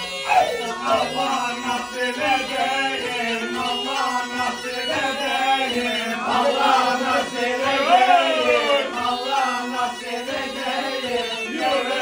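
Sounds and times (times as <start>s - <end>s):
men singing a chant-like melody: 0.0s - 12.0s.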